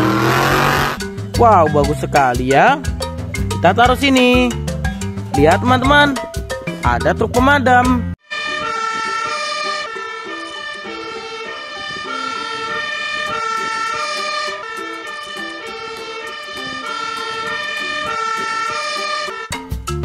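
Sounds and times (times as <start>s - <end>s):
fire engine siren: 0.0s - 1.0s, 8.2s - 19.5s.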